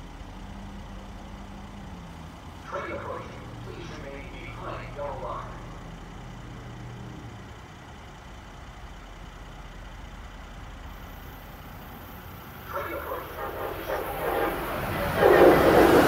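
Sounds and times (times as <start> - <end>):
oncoming train rushing: 10.9 - 16.0.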